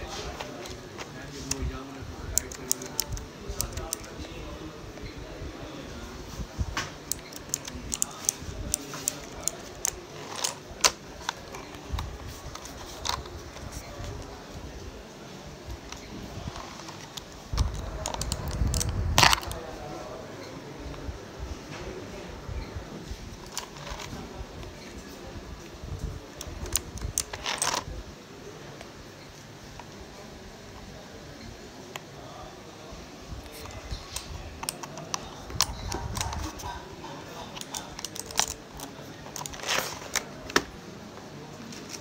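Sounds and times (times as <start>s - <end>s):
mechanical keyboard key clicks: 2.3s - 4.2s, 7.0s - 11.0s, 37.6s - 40.7s.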